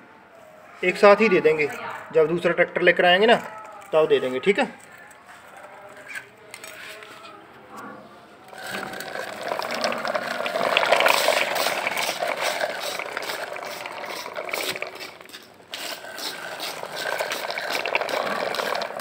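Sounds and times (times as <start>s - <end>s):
toy wheels rolling over concrete: 8.5s - 19.0s.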